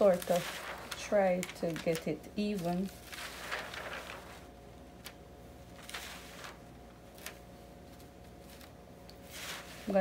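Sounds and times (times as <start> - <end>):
plastic tape crinkling: 0.0 - 5.2
steady low hum: 0.0 - 10.0.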